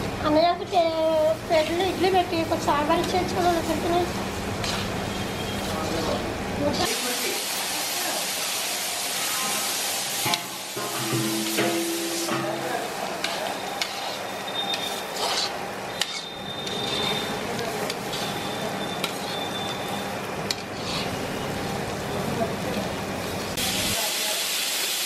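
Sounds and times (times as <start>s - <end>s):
onions sizzling in oil: 0.0s - 25.0s
ladle scraping a pan: 10.3s - 19.4s, 20.5s - 21.3s.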